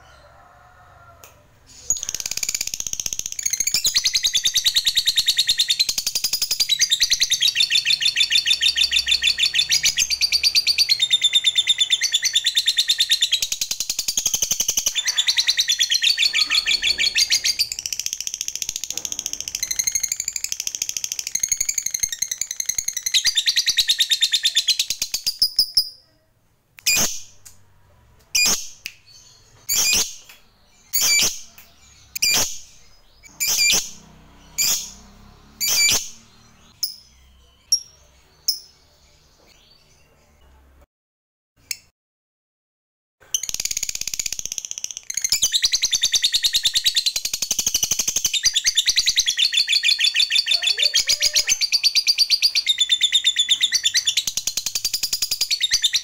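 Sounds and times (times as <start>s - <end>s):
lovebird rattling chatter: 1.9s - 4.2s, 13.6s - 23.2s, 43.3s - 46.2s
lovebird sharp calls: 14.2s - 18.0s.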